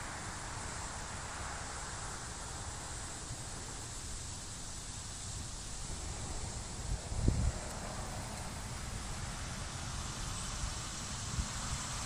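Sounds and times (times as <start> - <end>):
even outdoor hiss: 0.0 - 12.0.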